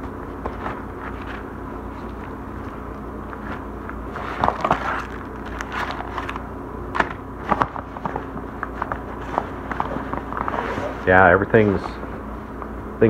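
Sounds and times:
plastic bag rustling and crinkling: 0:03.4 - 0:06.4.

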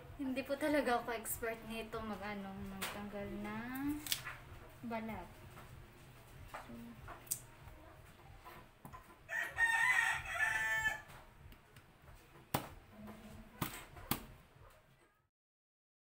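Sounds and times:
rooster crowing: 0:09.3 - 0:11.2.

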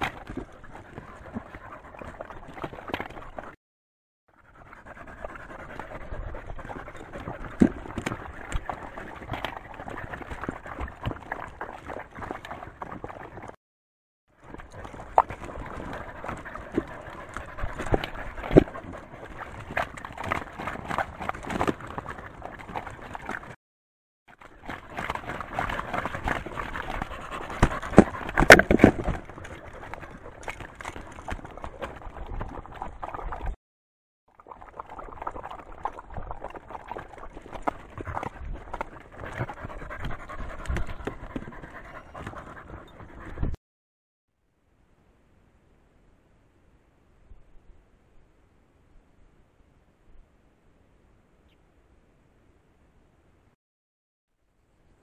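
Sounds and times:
dogs lapping water: 0:00.0 - 0:03.6, 0:04.4 - 0:13.6, 0:14.4 - 0:23.6, 0:24.3 - 0:33.6, 0:34.3 - 0:43.6
dogs panting: 0:00.1 - 0:03.6, 0:04.4 - 0:13.6, 0:14.5 - 0:23.5, 0:24.7 - 0:32.8, 0:36.9 - 0:43.6
claws and collars clicking on stone: 0:04.8 - 0:13.5, 0:24.9 - 0:32.5.

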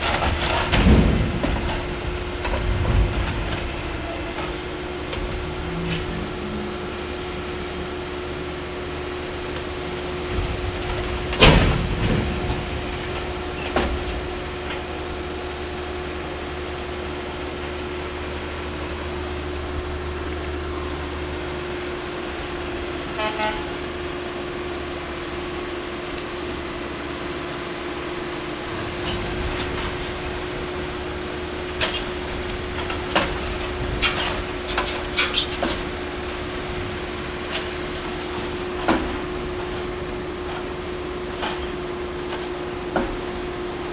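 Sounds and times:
train cars clanking: 0:00.0 - 0:43.9
train rolling past: 0:00.0 - 0:43.9
horn toot: 0:23.1 - 0:23.8.

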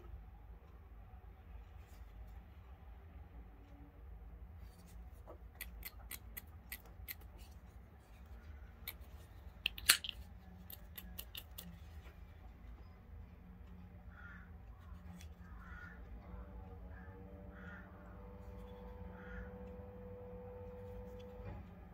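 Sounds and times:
small metallic clicks: 0:08.8 - 0:11.8.

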